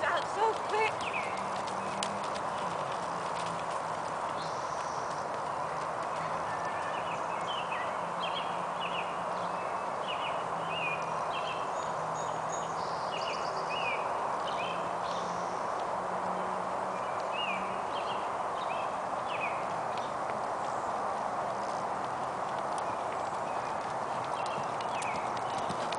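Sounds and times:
distant horse hoofbeats: 0.0 - 25.9
small birds chirping: 0.0 - 25.9
steady outdoor hiss: 0.0 - 25.9.

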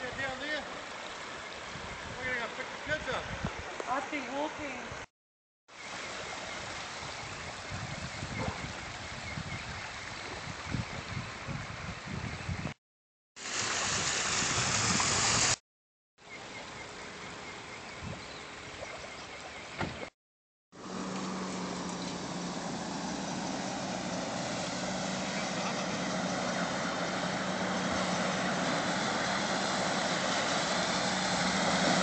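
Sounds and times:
water flowing and gurgling: 13.4 - 15.6.

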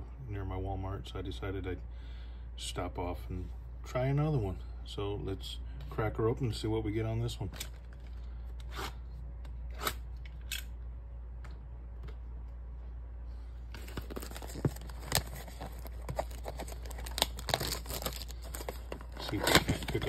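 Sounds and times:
plastic shrink wrap crinkling: 13.7 - 20.0.

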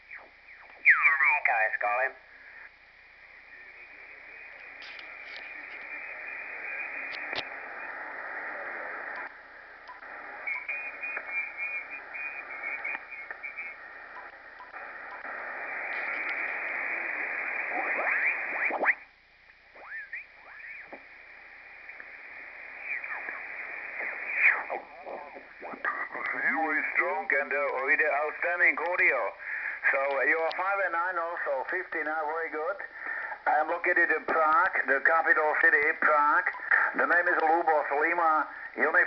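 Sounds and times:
faint garbled radio signals: 0.0 - 39.0
radio band hiss: 0.0 - 39.0
whistling chirps of off-tune voices: 0.1 - 2.7, 3.3 - 9.3, 9.9 - 19.0, 19.8 - 27.2.

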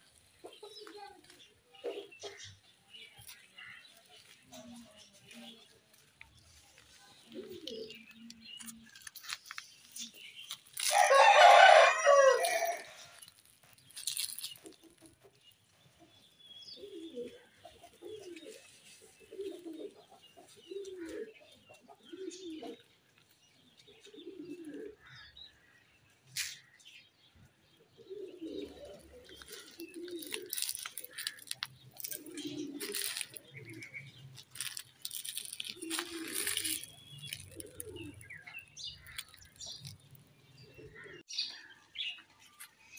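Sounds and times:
chickens clucking: 0.0 - 10.2, 16.8 - 22.9, 27.8 - 41.3
rooster crowing: 10.9 - 13.0.

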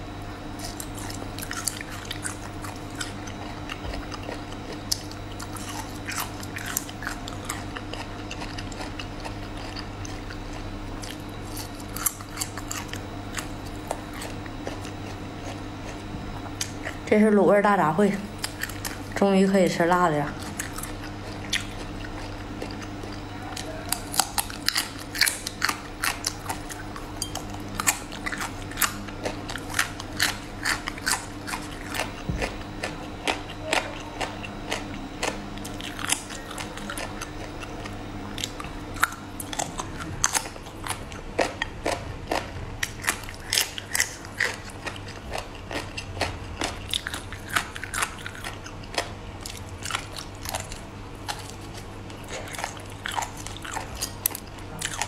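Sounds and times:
faint low hum: 0.0 - 55.0
wet chewing and biting: 0.5 - 17.2, 17.9 - 19.2, 19.9 - 55.0.

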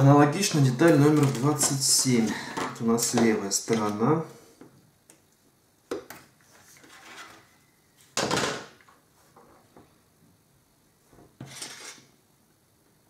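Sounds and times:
plastic parts handling noises: 0.7 - 4.0.

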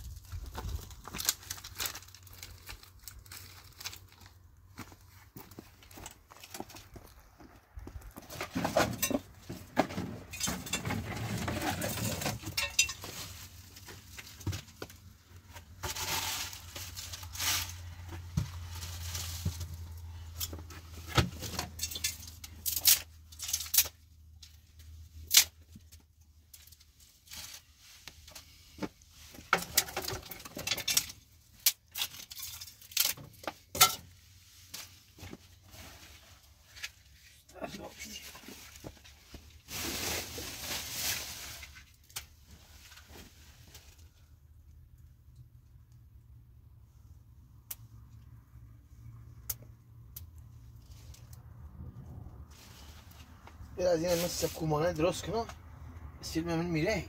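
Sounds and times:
objects clinking and knocking: 8.4 - 13.2.

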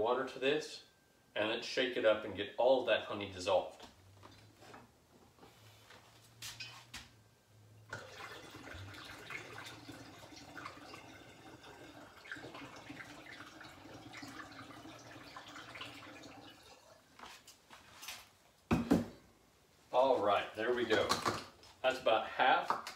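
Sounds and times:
water trickling through funnel: 7.9 - 17.3.

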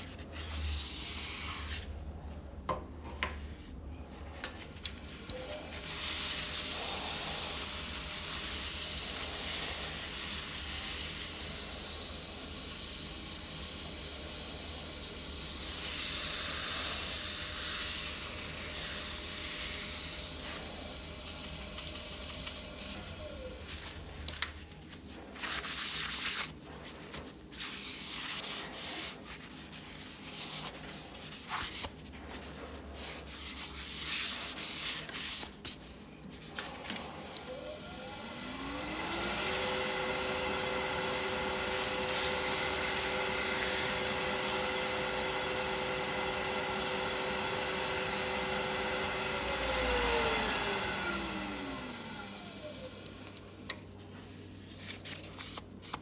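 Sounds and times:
wood lathe humming: 37.0 - 53.5.

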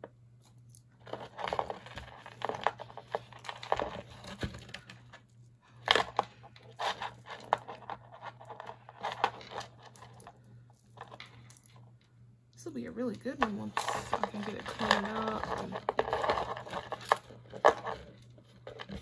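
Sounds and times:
metal chains and beads clinking: 13.5 - 17.2.

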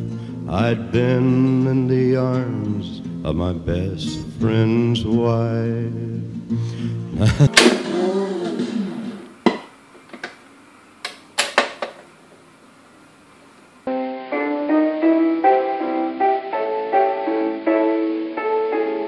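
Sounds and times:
instrumental music with quick notes: 13.9 - 19.0.

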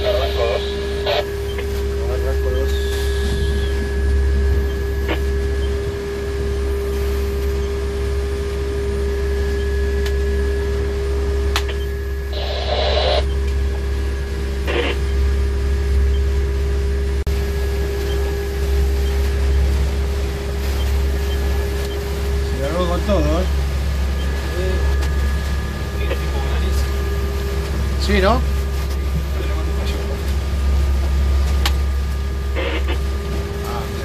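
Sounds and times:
boat engines droning: 0.0 - 34.0.

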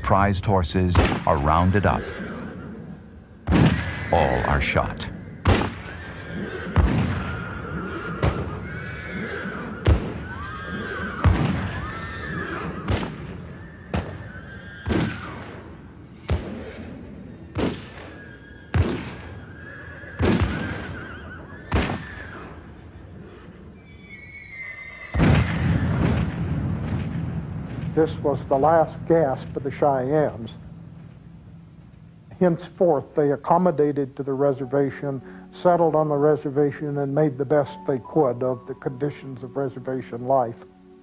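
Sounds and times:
gunshots: 0.9 - 2.5, 3.4 - 4.0, 5.4 - 8.6, 9.2 - 19.5, 20.2 - 21.1, 21.7 - 22.6, 25.2 - 29.9
horses whinnying and neighing: 1.4 - 27.8
loud rumbling noise: 25.4 - 32.5.

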